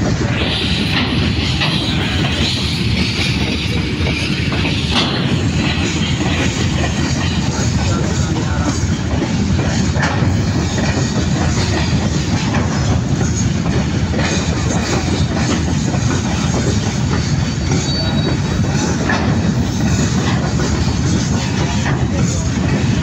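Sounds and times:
freight train rumble: 0.0s - 23.0s
wheels clacking over rail joints: 0.0s - 23.0s
high wheel squeal: 16.3s - 19.0s.

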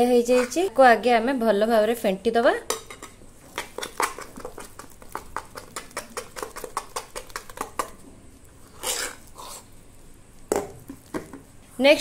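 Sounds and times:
spoon beating batter in bowl: 2.8s - 8.0s
spoon scraping along bowl: 8.6s - 9.7s.

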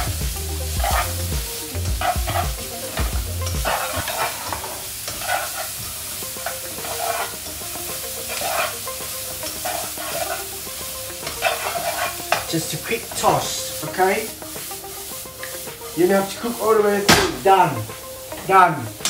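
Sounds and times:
tongs scraping wok: 0.0s - 19.0s
vegetables sizzling in a wok: 0.0s - 19.0s.

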